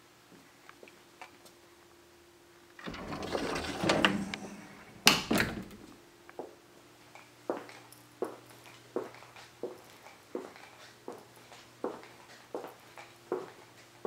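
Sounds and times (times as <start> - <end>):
object sliding: 2.8 - 5.1.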